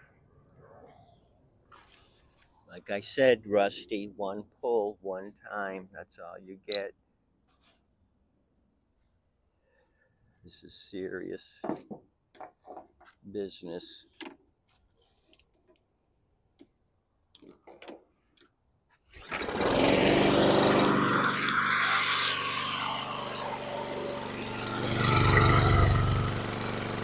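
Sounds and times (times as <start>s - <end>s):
lawn mower engine starting and running: 19.1s - 27.0s.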